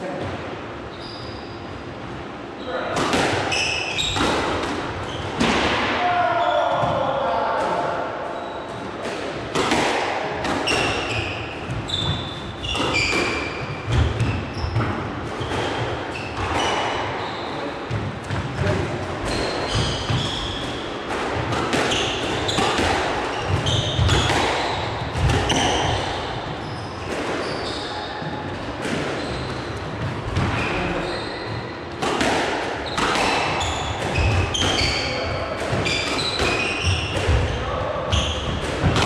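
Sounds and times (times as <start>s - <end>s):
shoes squeaking on court floor: 0.9s - 1.7s, 3.5s - 4.5s, 5.1s - 5.4s, 10.6s - 21.0s, 21.7s - 31.8s, 32.8s - 38.6s
squash ball hit by rackets: 3.0s - 6.0s, 9.0s - 17.2s, 17.9s - 27.5s, 32.0s - 37.6s, 38.4s - 39.0s.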